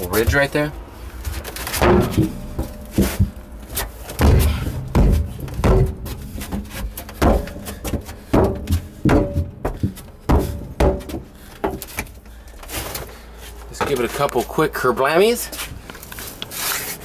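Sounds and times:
feet stomping on sheet metal: 0.1s - 13.0s.

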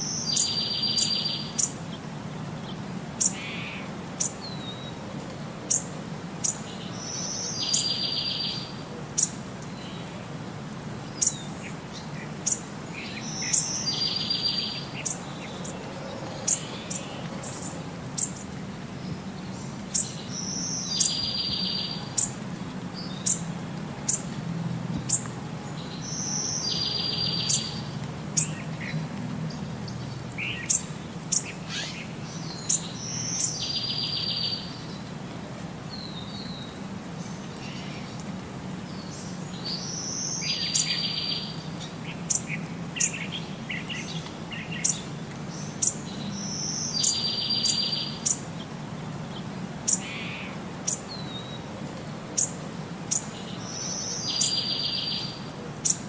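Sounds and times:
bird chirping: 0.0s - 1.8s, 5.7s - 10.1s, 11.1s - 22.4s, 25.0s - 29.0s, 39.0s - 48.4s, 52.4s - 56.0s.

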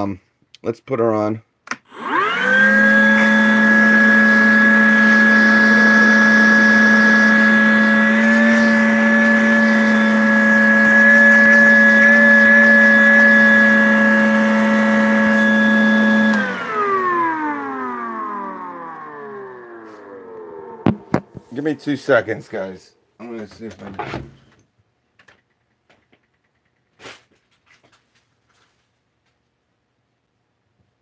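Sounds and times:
vacuum motor whining: 1.9s - 22.4s.

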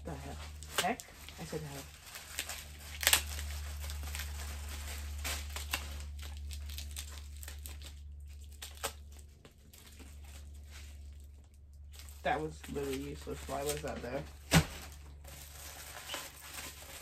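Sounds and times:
paper envelope crinkling: 0.0s - 17.0s
knife slitting envelope: 0.5s - 9.0s.

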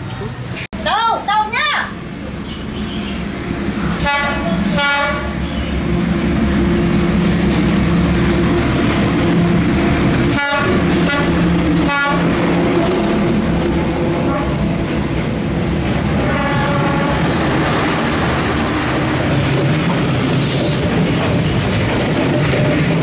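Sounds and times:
diesel engine drone: 2.0s - 22.0s
train horn blasts: 4.0s - 5.6s, 10.3s - 12.4s, 14.2s - 14.7s, 16.2s - 17.4s.

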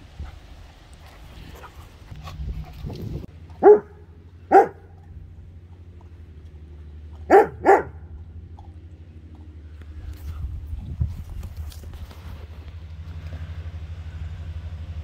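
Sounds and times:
dog barking: 3.6s - 5.0s, 7.3s - 8.1s.

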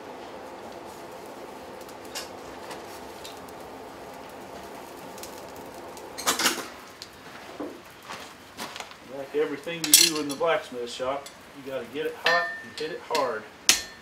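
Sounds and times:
coal forge humming: 0.0s - 14.0s
metal clatter of tongs: 9.8s - 10.5s.

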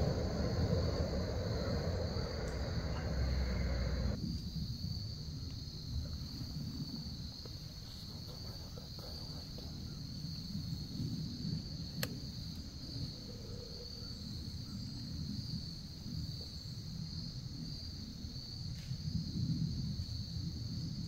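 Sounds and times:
low rumble: 0.0s - 4.2s
insects chirring shrilly: 0.0s - 19.1s.

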